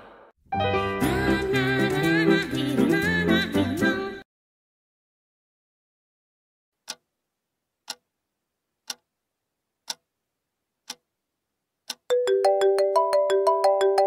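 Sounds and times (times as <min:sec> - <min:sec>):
clock ticking: 0:06.8 - 0:07.1, 0:07.8 - 0:08.1, 0:08.8 - 0:09.1, 0:09.8 - 0:10.1, 0:10.8 - 0:11.1, 0:11.8 - 0:12.4
phone ringtone melody: 0:12.1 - 0:14.0.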